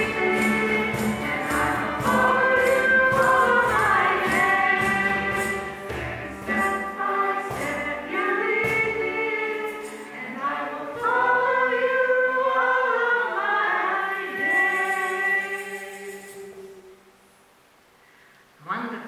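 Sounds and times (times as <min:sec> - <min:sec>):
hand percussion hits: 0:00.0 - 0:10.1
violin: 0:00.0 - 0:11.9
acoustic guitars: 0:00.0 - 0:12.5
mixed voices singing: 0:00.0 - 0:17.0
piano: 0:00.0 - 0:17.4.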